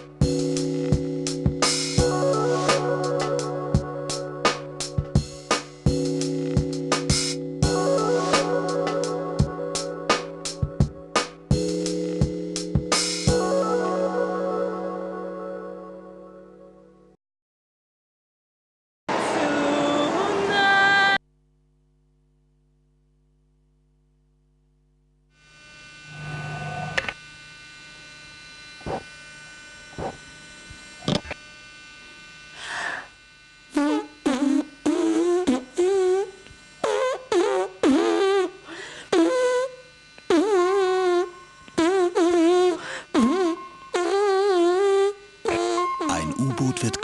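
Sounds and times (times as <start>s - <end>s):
woman singing unaccompanied: 19.3s - 21.2s.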